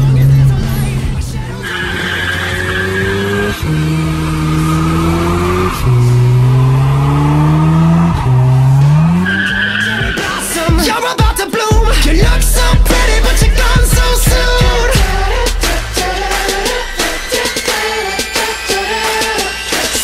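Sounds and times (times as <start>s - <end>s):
rotary engine revving hard: 0.0s - 10.7s
tyres squealing: 0.0s - 11.2s.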